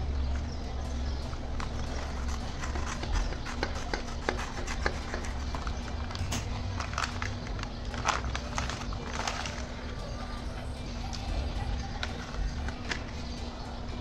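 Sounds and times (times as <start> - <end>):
steady low hum: 0.0 - 14.0
scissors snipping paper: 1.6 - 9.7
paper crinkling and rustling: 4.3 - 9.9.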